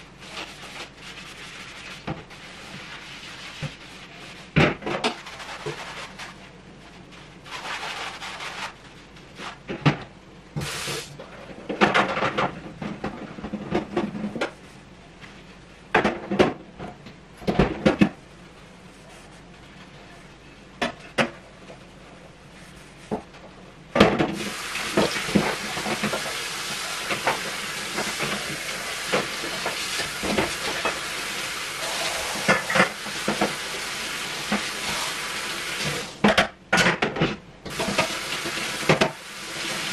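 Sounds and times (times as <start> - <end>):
tap water running into sink: 24.3 - 36.2, 37.7 - 39.9.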